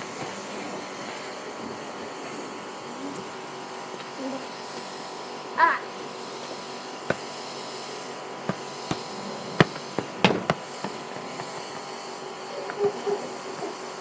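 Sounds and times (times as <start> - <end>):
flip-flop footsteps: 7.0 - 7.4, 8.4 - 13.0
football bouncing on paving: 7.0 - 7.5, 8.4 - 12.4.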